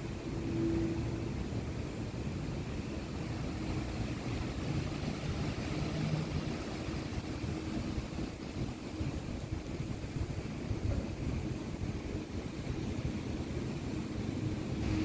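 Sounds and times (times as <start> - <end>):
faint humming tone: 0.0 - 7.9
engine rumble: 0.0 - 15.0.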